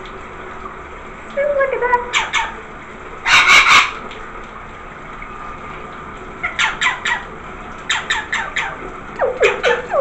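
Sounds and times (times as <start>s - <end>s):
parrot squawking: 2.1s - 2.6s, 3.2s - 4.0s, 6.4s - 7.3s, 7.9s - 10.0s.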